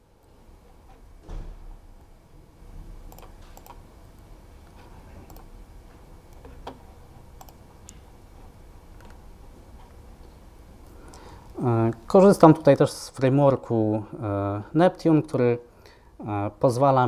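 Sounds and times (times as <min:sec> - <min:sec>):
low room hum: 0:00.0 - 0:17.0
laptop keystrokes: 0:03.1 - 0:03.8, 0:07.4 - 0:08.0.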